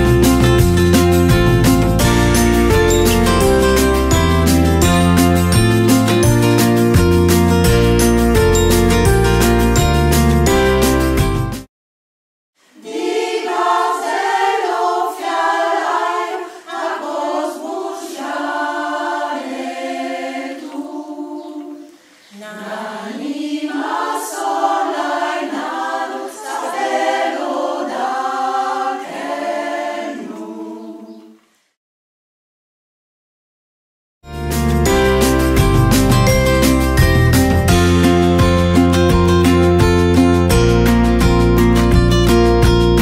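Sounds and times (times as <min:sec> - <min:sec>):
a cappella choir singing: 0:12.8 - 0:31.4.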